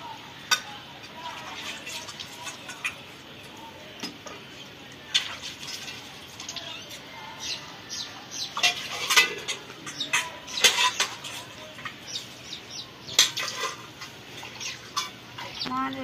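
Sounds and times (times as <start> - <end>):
metal pots clanking: 8.5 - 12.0, 13.0 - 15.6.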